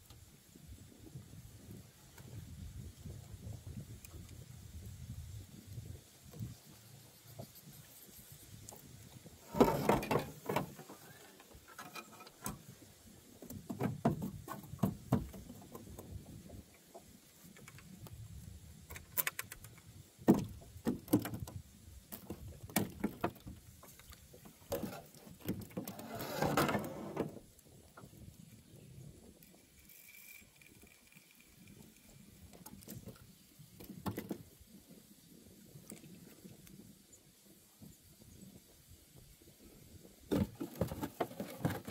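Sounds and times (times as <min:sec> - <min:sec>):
fishing rod and reel handling: 0:29.4 - 0:33.3.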